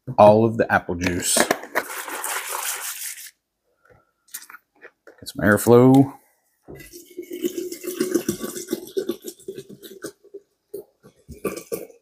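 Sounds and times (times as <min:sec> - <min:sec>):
juice pouring and gurgling: 0:01.8 - 0:03.4, 0:06.7 - 0:12.0
liquid splashes: 0:06.8 - 0:10.2.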